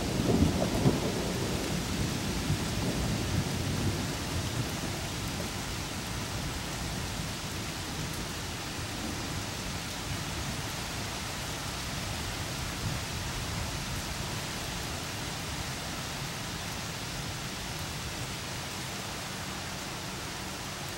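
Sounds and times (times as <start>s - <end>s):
distant thunder rumbling: 0.0s - 9.5s
rain falling on trees and roofs: 0.0s - 20.9s.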